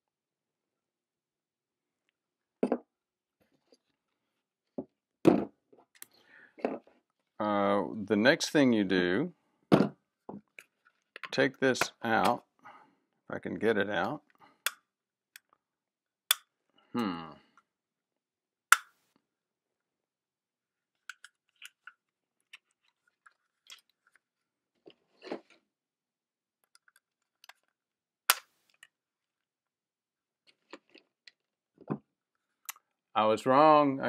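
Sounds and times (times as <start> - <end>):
loud sharp plastic snaps: 18.7 - 19.0, 28.3 - 28.6.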